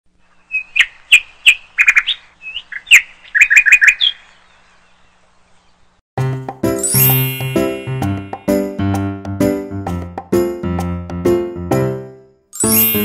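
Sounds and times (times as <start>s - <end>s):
small bird chirping: 0.2s - 6.0s.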